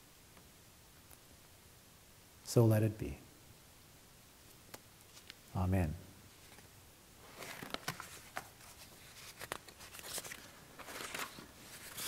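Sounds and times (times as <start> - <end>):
papers rustling: 6.4 - 12.0.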